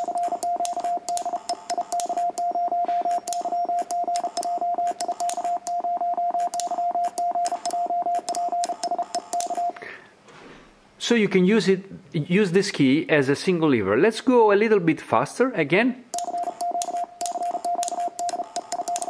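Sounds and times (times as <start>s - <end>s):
morse code sidetone beeping: 0.0s - 9.8s, 16.2s - 19.0s.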